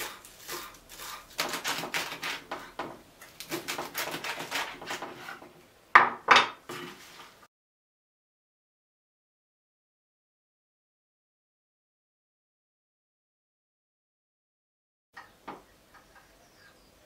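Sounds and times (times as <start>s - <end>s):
knife chopping on wooden board: 0.0s - 5.4s.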